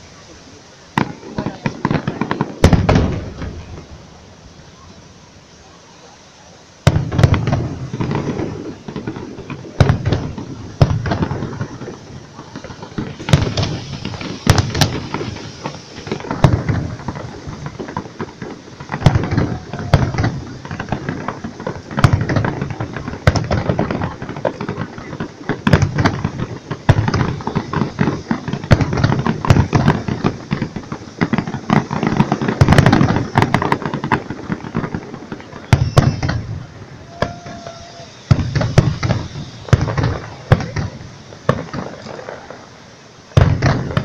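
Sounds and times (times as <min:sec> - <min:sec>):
fireworks crackling and popping: 0:00.0 - 0:44.0
firework shells bursting with booms: 0:00.9 - 0:04.3, 0:06.8 - 0:44.0.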